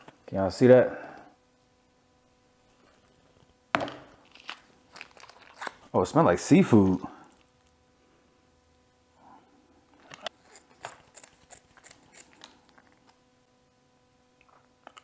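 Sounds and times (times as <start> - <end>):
plastic packet crinkling: 4.2 - 5.9.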